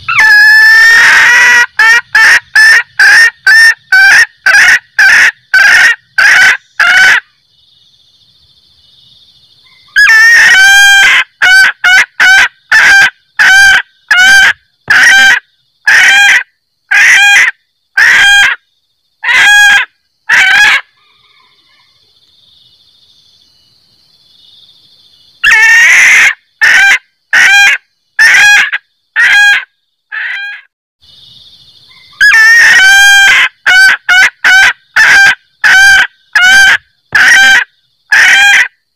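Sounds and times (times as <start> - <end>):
hen cackling call: 0.0 - 7.3, 9.7 - 18.6, 19.2 - 21.9, 25.4 - 30.7, 31.9 - 38.8.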